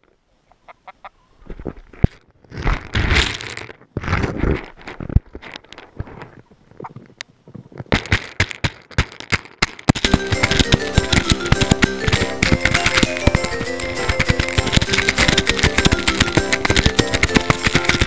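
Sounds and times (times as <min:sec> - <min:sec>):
chickens pecking and scratching: 0:00.0 - 0:18.0
sharp pecking taps: 0:10.0 - 0:18.0.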